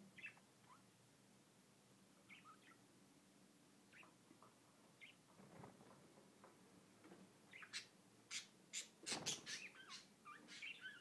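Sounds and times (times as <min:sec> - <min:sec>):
budgerigar chirping: 0:00.2 - 0:00.8, 0:02.3 - 0:02.8, 0:07.5 - 0:11.0.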